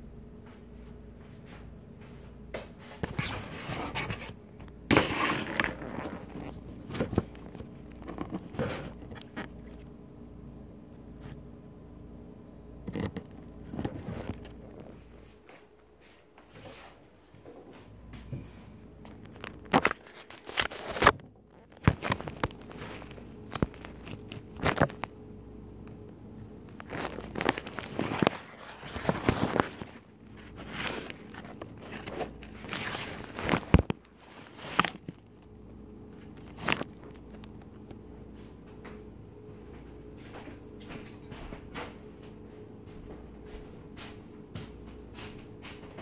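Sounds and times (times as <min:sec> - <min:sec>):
steady low hum: 0:00.0 - 0:46.0
plastic rustling: 0:03.0 - 0:10.0, 0:12.9 - 0:15.5, 0:19.0 - 0:25.1, 0:26.6 - 0:35.6, 0:36.2 - 0:37.8.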